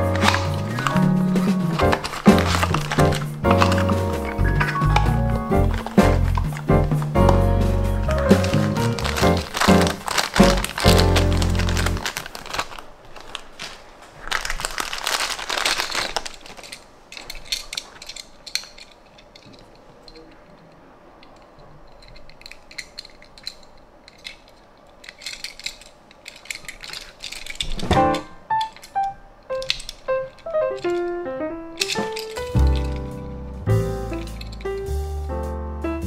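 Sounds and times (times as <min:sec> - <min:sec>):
toy car clicking and tapping: 0:00.0 - 0:12.6, 0:15.6 - 0:20.3, 0:21.2 - 0:31.2, 0:31.8 - 0:33.2
plastic bag crinkling: 0:00.0 - 0:33.3.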